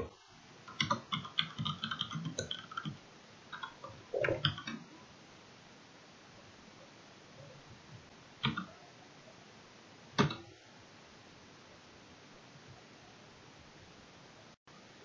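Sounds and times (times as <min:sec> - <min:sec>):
computer keyboard typing: 0:00.7 - 0:04.8, 0:08.4 - 0:08.7.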